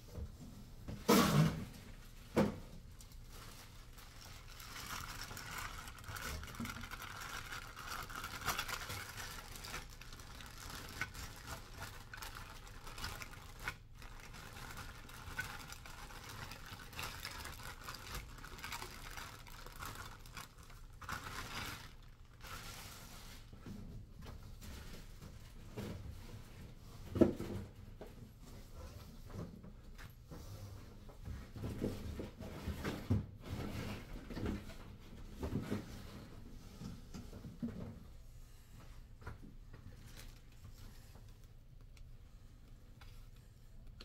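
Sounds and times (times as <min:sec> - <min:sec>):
plastic bag crinkling: 0:03.2 - 0:22.9.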